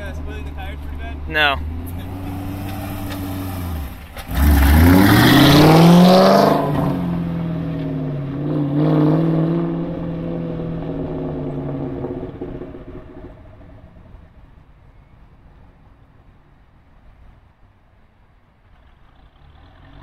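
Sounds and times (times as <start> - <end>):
car engine accelerating hard: 0.0 - 14.1, 18.8 - 20.0.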